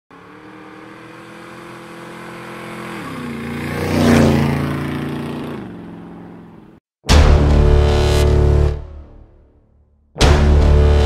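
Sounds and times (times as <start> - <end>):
motorcycle passing by: 0.1 - 6.8.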